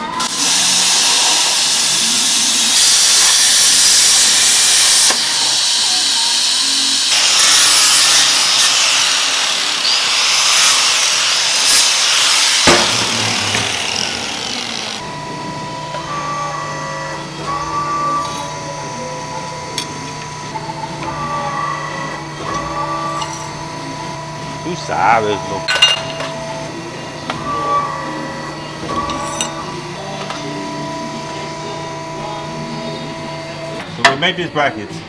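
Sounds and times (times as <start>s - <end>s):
angle grinder grinding steel: 0.0s - 33.8s
steady hum: 7.0s - 33.9s.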